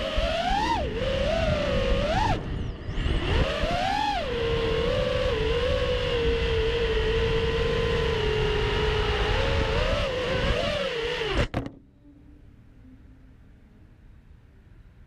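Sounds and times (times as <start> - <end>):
quadcopter motors whining: 0.0 - 11.7.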